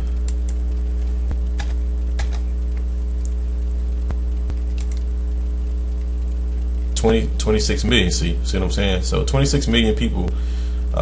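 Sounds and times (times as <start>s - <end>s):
electrical mains hum: 0.0s - 11.0s
keyboard and mouse clicks: 1.6s - 2.4s, 4.5s - 5.0s.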